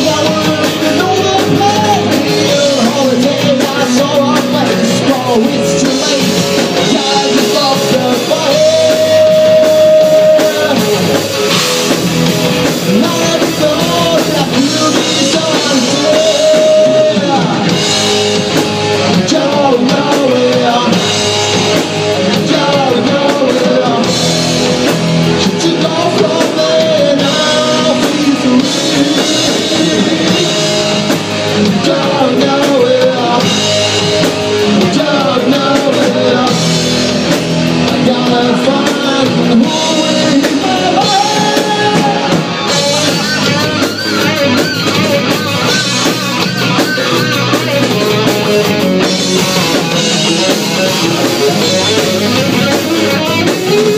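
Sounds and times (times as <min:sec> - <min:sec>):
person singing long notes: 0:00.0 - 0:11.3, 0:37.8 - 0:53.9
bass guitar: 0:00.0 - 0:53.9
distorted electric guitar: 0:00.0 - 0:53.9
drum kit: 0:00.0 - 0:53.9.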